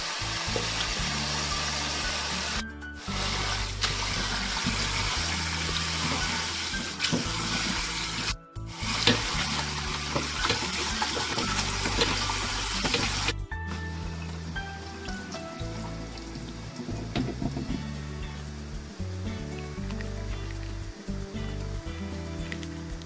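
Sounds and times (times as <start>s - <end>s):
tap water running into colander: 0.0s - 13.4s, 14.0s - 17.8s
hand rinsing noodles: 0.3s - 13.3s.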